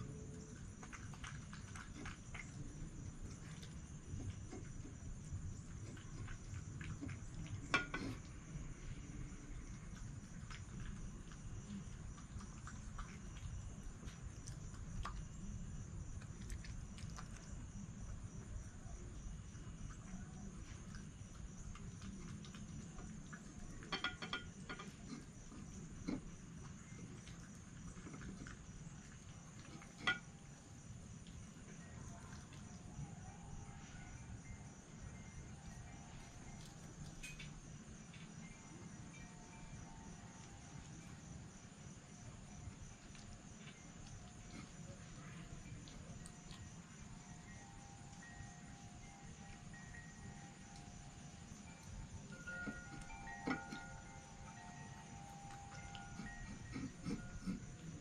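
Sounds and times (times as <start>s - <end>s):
fox crunching dry food: 0.0s - 17.8s, 19.8s - 32.8s, 50.5s - 58.0s
high-pitched insect trill: 28.7s - 58.0s.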